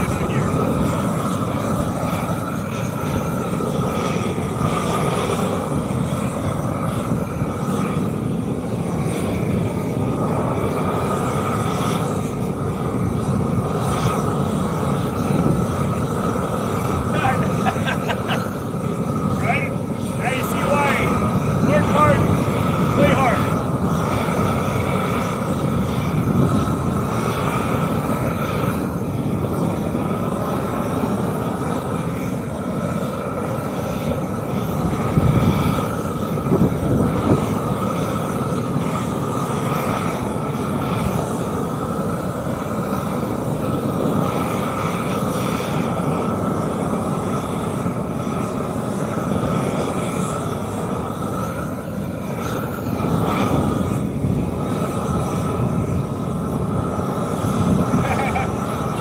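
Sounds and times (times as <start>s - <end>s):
high whine: 0.0s - 41.9s, 48.0s - 59.0s.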